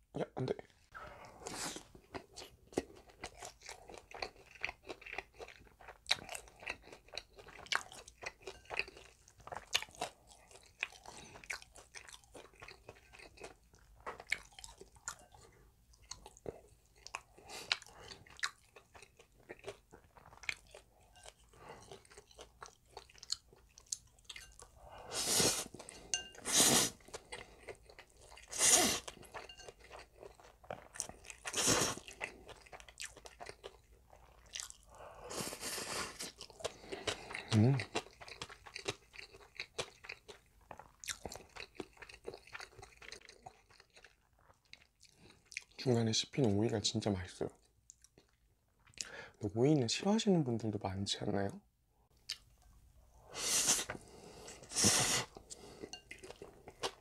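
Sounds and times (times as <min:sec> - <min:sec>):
crunchy chewing: 0:01.4 - 0:15.4, 0:16.0 - 0:45.8
slurping noodles: 0:25.0 - 0:25.8, 0:26.4 - 0:27.2, 0:28.5 - 0:29.1, 0:31.5 - 0:32.0, 0:53.3 - 0:56.0.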